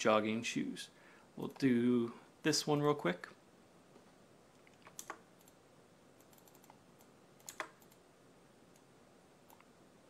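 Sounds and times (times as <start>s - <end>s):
computer mouse and keys clicking: 4.0s - 5.6s, 6.2s - 8.0s, 8.7s - 9.7s.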